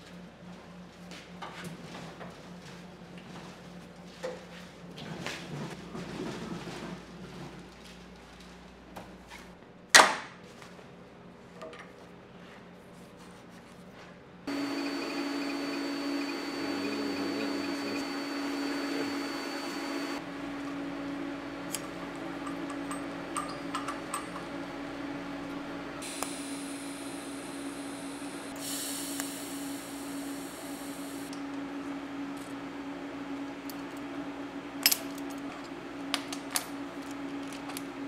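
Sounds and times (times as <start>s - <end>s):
cooling fan running: 14.3s - 38.0s
thin high whine: 14.5s - 20.8s, 24.8s - 31.4s
welder humming: 14.5s - 34.9s.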